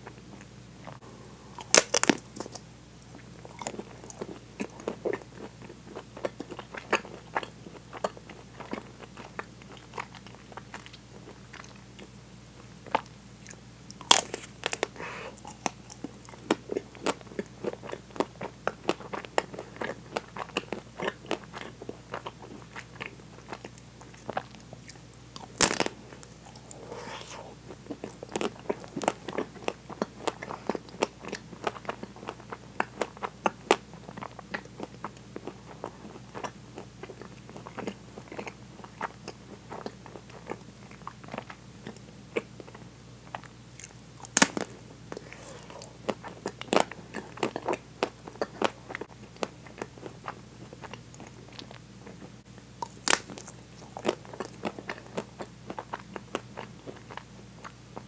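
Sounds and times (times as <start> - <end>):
crunchy chewing: 0.0 - 58.0
chocolate shell cracking: 1.6 - 2.6.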